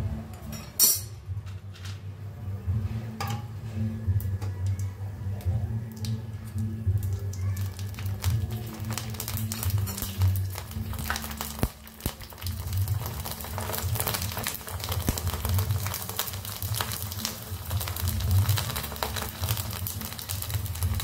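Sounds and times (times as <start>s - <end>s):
food frying in hot oil: 6.0s - 21.0s.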